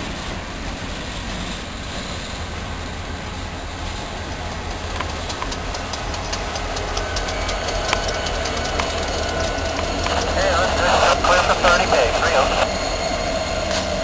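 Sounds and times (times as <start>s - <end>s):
train wheels clicking over rail joints: 0.0s - 10.4s
diesel locomotive engine rumble: 0.0s - 14.0s.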